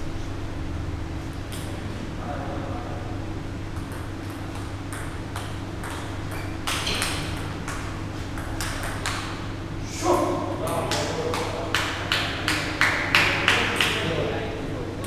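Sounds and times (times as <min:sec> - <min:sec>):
steady low hum: 0:00.0 - 0:15.0
table tennis ball clicking: 0:03.8 - 0:09.3.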